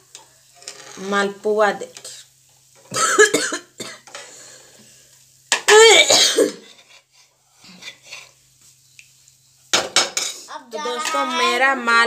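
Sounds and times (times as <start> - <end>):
person coughing: 2.9 - 4.1, 5.7 - 6.6.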